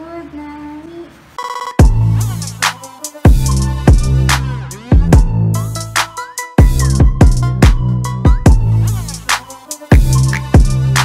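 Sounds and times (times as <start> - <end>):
heavy bass drum hit: 1.8 - 2.6, 3.3 - 5.6, 6.6 - 8.8, 10.0 - 11.0.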